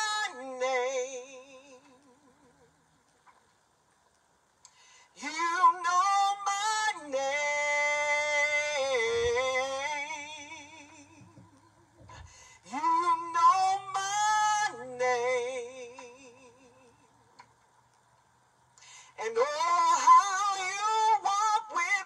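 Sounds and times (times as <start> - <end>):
woman singing with vibrato: 0.0 - 2.7, 5.2 - 11.9, 12.6 - 17.1, 19.2 - 22.0.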